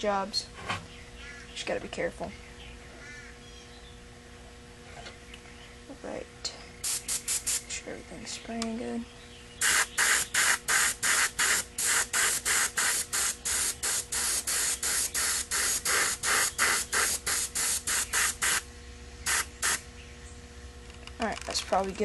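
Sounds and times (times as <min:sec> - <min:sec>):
spray-paint can hissing in bursts: 0:06.8 - 0:07.6, 0:09.6 - 0:18.6, 0:19.3 - 0:19.8.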